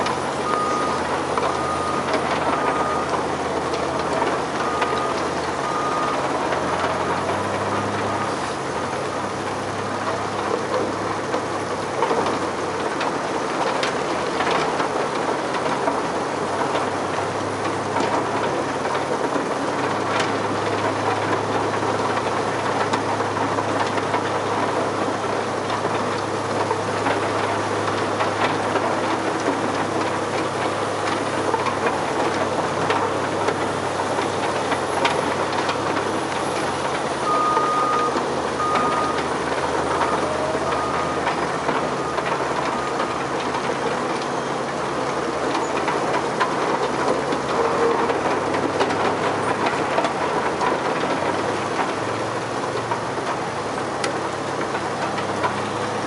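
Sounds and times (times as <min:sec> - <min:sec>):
diesel machinery running: 0:00.0 - 0:56.0
loader engine: 0:00.0 - 0:56.0
reversing beeper: 0:00.4 - 0:08.4, 0:37.2 - 0:43.3.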